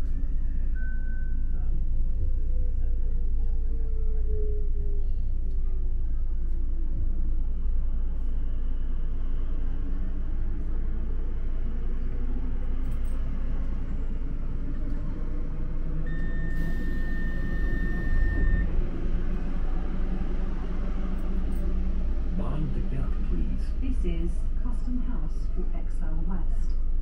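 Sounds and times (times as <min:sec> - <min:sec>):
train equipment hum and rumble: 0:00.0 - 0:27.0
steady electronic tone: 0:15.8 - 0:22.3.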